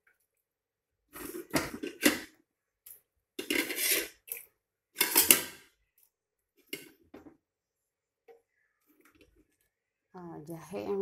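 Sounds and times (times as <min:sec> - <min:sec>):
pot and utensils clinking: 0:03.4 - 0:04.2, 0:05.0 - 0:05.7.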